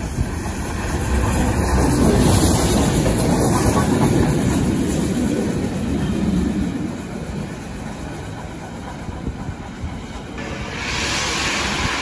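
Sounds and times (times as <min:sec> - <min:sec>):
steam train passing: 0:00.0 - 0:12.0.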